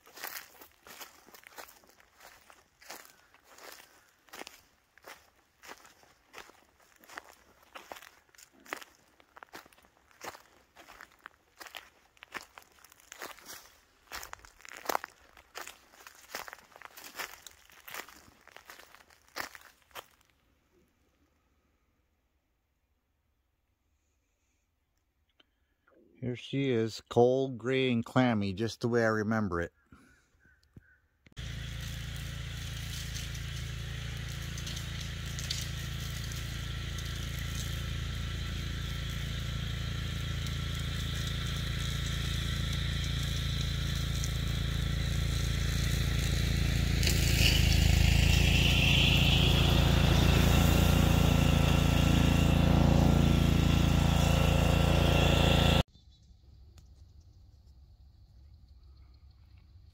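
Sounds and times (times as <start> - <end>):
engine rumbling: 0.0 - 19.6, 31.4 - 55.9
engine whine rising in pitch: 31.4 - 55.9.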